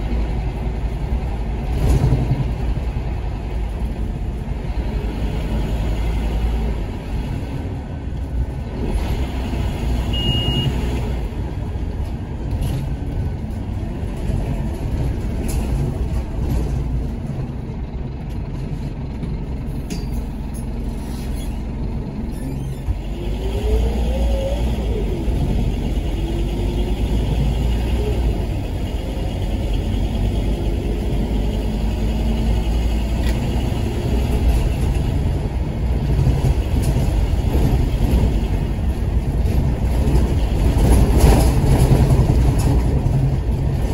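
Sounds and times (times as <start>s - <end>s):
rough bus engine: 0.0s - 43.9s
brief high beep: 10.1s - 10.8s.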